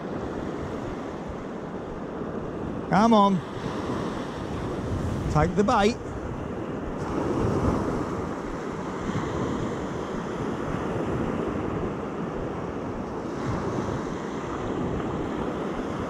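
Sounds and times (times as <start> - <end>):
small waves washing onto beach: 0.0 - 16.0
wind rumbling on microphone: 0.0 - 16.0.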